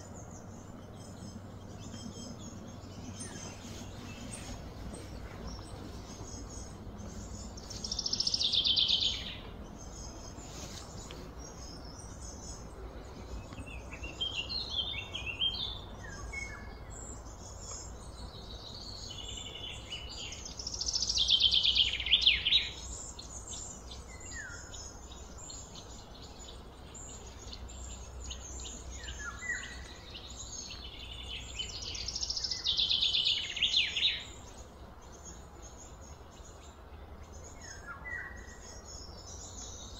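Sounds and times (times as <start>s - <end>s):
high bird song: 0.0s - 39.9s
low steady hum: 0.0s - 39.9s.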